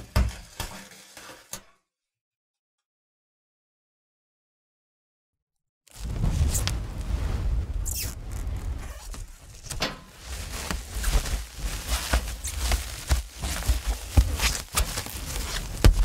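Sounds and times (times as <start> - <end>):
plastic cling wrap crackling: 7.8 - 16.0.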